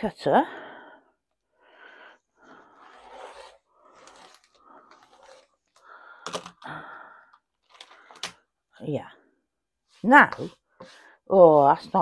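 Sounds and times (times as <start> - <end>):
hands scraping and rustling plastic: 2.8 - 6.6.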